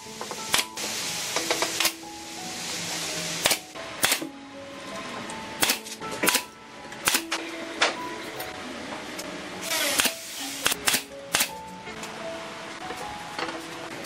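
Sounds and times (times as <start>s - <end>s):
nail gun shots into wood: 3.4s - 4.3s, 5.6s - 7.2s, 9.9s - 11.5s.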